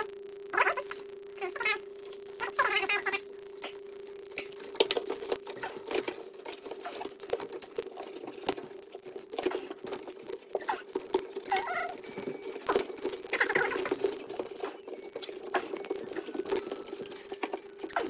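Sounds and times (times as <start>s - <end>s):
faint steady hum: 0.0s - 18.0s
rubber seal rubbing and squeaking: 4.6s - 18.0s.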